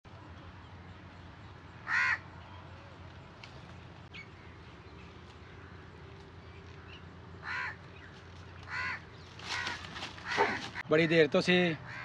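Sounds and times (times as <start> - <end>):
crows cawing: 1.8 - 2.2, 6.8 - 8.0, 8.6 - 10.9.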